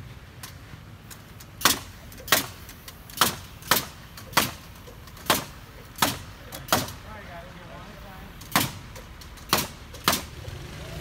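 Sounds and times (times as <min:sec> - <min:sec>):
hammer striking timber: 0:01.6 - 0:04.6, 0:05.2 - 0:07.0, 0:08.5 - 0:08.8, 0:09.4 - 0:10.4.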